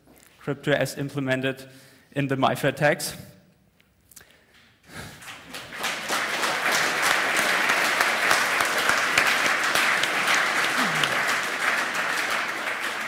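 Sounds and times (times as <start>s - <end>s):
audience applauding: 5.1s - 13.0s.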